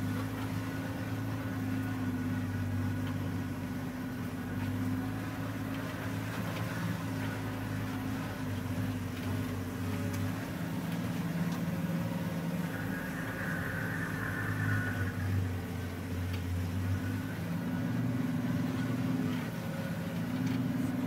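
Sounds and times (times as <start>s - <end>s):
vehicle engine humming: 0.0s - 21.0s.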